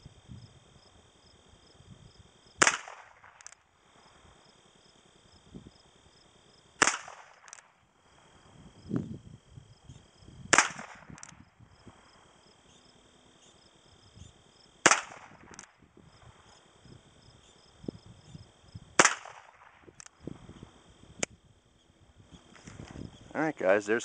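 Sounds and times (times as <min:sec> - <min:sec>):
revolver gunshots: 0:02.6 - 0:03.6, 0:06.8 - 0:07.7, 0:10.5 - 0:11.3, 0:14.8 - 0:15.7, 0:19.0 - 0:19.9.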